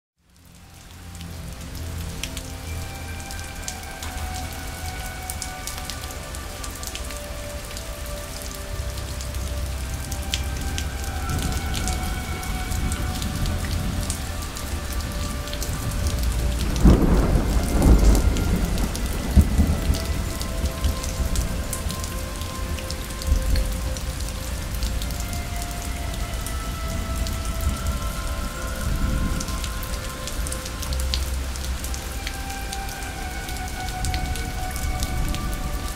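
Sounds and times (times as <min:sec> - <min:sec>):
steady rain: 0:00.2 - 0:35.9
rolling thunder: 0:15.0 - 0:22.1.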